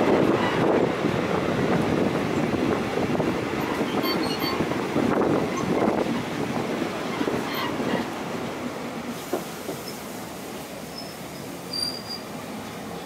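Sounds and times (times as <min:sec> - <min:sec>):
train wheels rumbling on rails: 0:00.0 - 0:13.0
wheel squeals: 0:03.7 - 0:04.6, 0:10.9 - 0:12.3.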